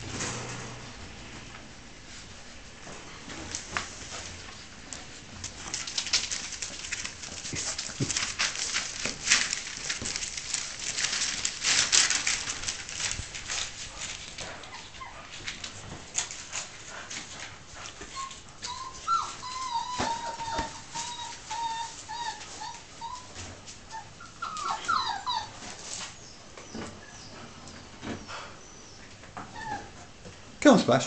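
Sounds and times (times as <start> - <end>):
dogs whimpering: 14.4 - 15.4, 17.8 - 30.2.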